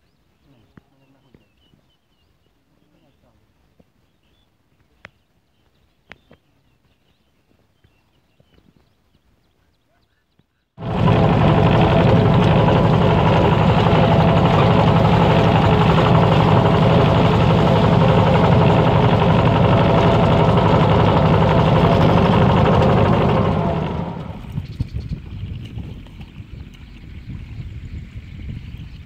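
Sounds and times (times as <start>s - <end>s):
vehicle engine chugging: 10.8s - 24.9s.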